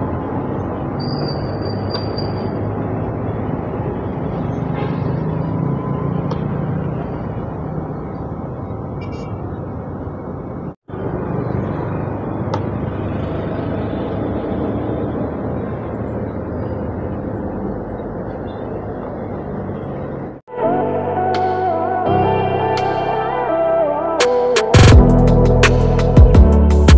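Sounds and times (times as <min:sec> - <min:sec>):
bus engine rumble passing: 0:00.0 - 0:20.5
road noise: 0:00.0 - 0:26.9
motorcycle passing: 0:02.6 - 0:08.1.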